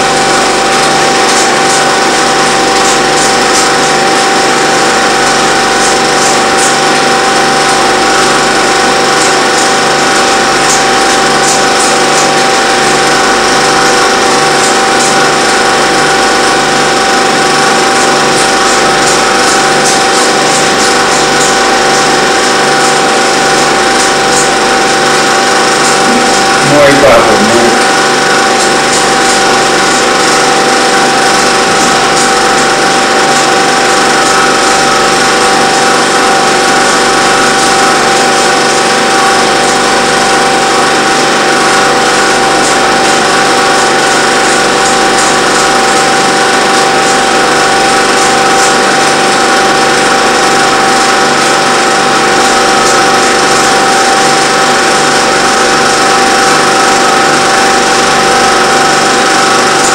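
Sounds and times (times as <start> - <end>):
film projector whirring: 0.0 - 59.9.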